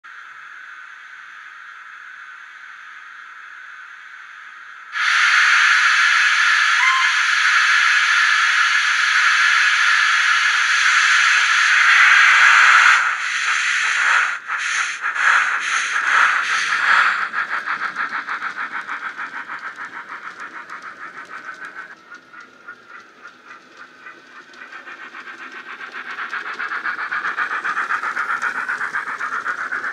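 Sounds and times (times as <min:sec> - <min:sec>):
steam hiss: 0:04.9 - 0:29.9
steam engine chuffing: 0:05.0 - 0:29.9.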